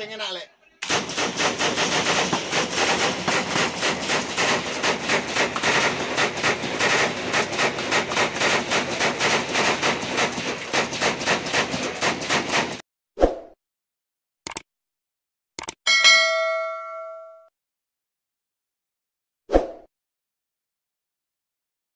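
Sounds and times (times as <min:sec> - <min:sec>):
machine gun firing continuous burst: 0:00.8 - 0:12.8.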